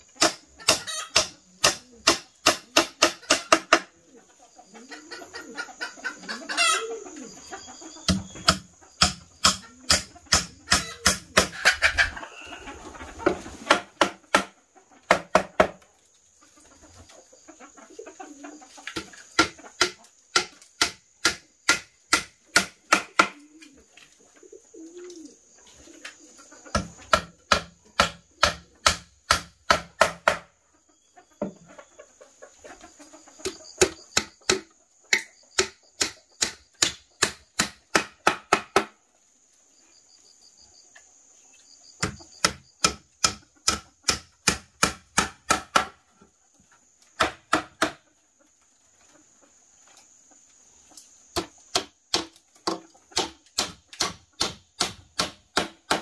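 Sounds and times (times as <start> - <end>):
chopping strikes: 8.1 - 11.5, 19.0 - 23.4, 26.8 - 30.5, 33.8 - 38.9, 42.0 - 45.9, 51.4 - 56.0.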